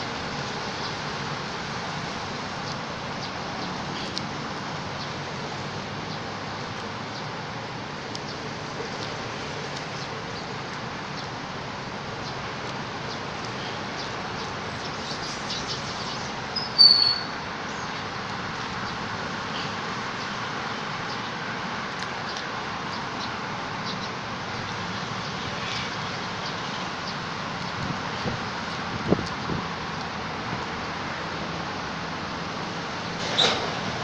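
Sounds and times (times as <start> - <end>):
short high-pitched squeak: 16.6 - 17.4, 33.2 - 33.7.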